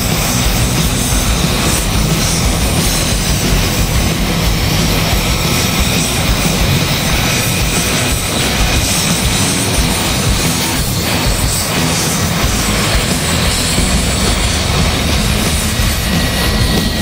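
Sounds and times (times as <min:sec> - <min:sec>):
jet engine rushing: 0:00.0 - 0:17.0.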